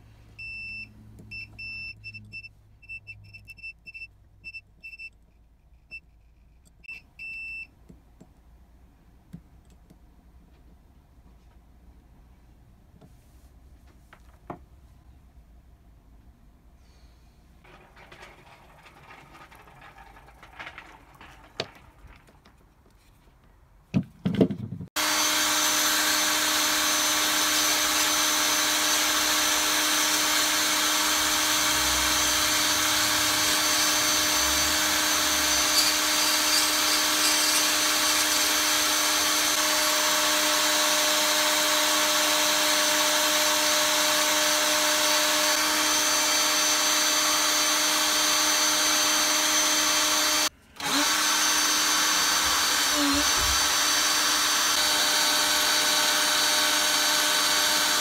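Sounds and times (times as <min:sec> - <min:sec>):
power drill whine: 0:17.6 - 0:22.2, 0:25.0 - 0:58.0.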